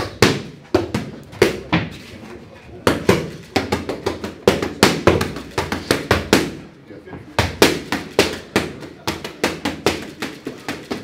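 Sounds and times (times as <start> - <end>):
boxing gloves smacking focus mitts: 2.8 - 6.6, 7.4 - 11.0.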